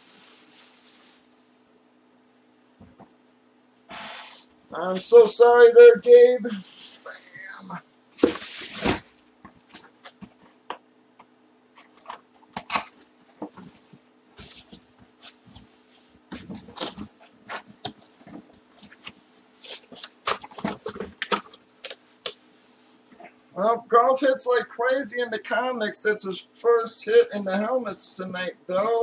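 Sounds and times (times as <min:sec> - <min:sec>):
plastic bag crackling: 0:00.0 - 0:01.9
faint steady hum: 0:00.0 - 0:29.0
cardboard boxes rustling and scraping: 0:08.2 - 0:10.5, 0:11.8 - 0:21.6, 0:28.8 - 0:29.0.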